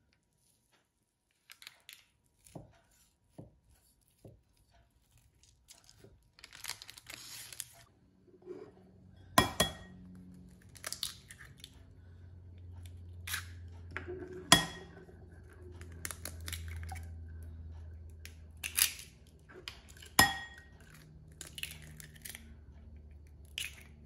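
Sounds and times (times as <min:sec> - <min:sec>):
knife cutting crisp cake crust: 0:02.2 - 0:06.2
parchment paper rustling: 0:03.0 - 0:07.9.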